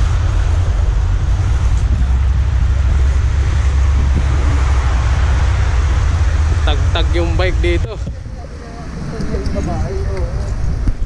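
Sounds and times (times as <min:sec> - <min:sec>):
wind noise on microphone: 0:00.0 - 0:11.0.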